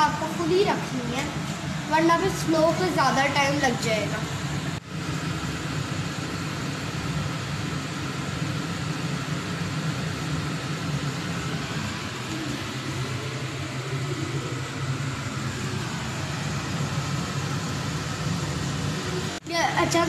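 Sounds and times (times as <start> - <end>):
low hum: 0.0 - 19.4
dough sizzling in hot oil: 4.8 - 14.1.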